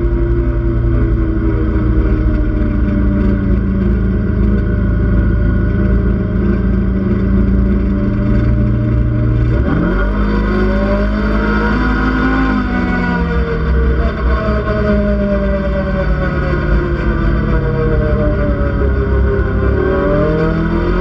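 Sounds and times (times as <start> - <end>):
utility vehicle engine running: 0.0 - 21.0
wind and terrain rumble: 0.0 - 21.0.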